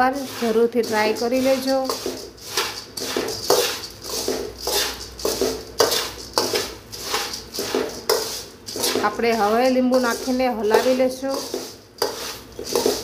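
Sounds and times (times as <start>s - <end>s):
metal spoon scraping metal pan: 0.0s - 13.0s
puffed rice rustling: 0.0s - 13.0s.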